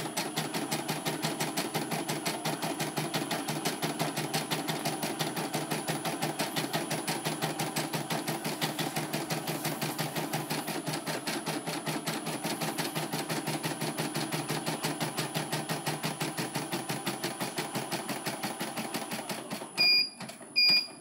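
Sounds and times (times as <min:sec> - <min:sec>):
embroidery machine stitching: 0:00.0 - 0:20.4
machine beeping: 0:19.8 - 0:21.0.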